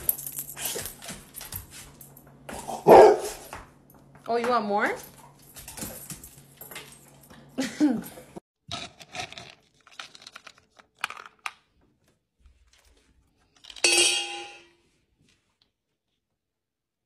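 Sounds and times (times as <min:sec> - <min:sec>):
bowl clattering with metallic ring: 0:13.8 - 0:14.8.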